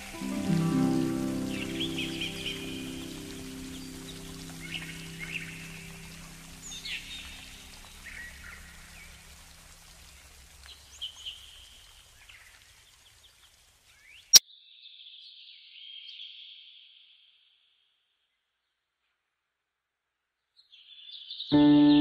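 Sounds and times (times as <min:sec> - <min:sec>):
birds chirping: 0:00.0 - 0:14.4, 0:21.5 - 0:22.0
faint outdoor background: 0:00.0 - 0:22.0.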